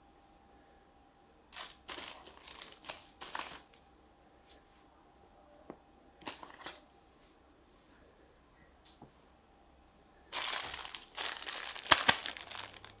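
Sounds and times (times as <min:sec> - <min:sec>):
plastic pieces rustling and clattering: 0:01.5 - 0:03.8, 0:06.2 - 0:06.9, 0:10.3 - 0:13.0.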